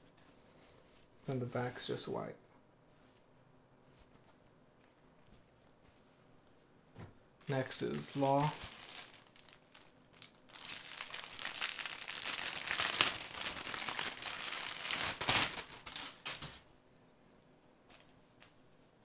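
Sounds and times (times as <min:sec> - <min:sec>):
plastic packaging crinkling: 0:07.4 - 0:16.6.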